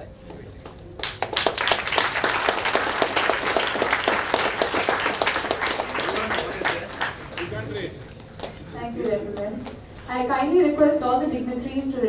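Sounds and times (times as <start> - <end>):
audience applauding: 1.0 - 9.5.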